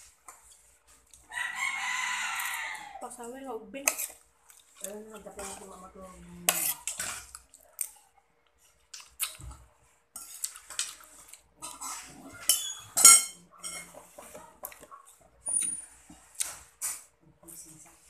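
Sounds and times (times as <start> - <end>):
metal spoon scraping ceramic bowl: 3.8 - 4.2, 5.3 - 7.4, 11.6 - 14.3.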